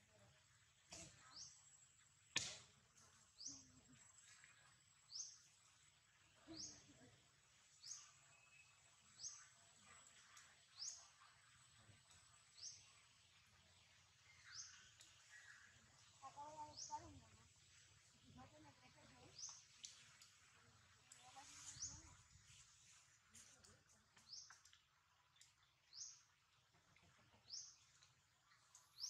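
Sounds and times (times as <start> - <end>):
bird chirping: 13.7 - 17.0.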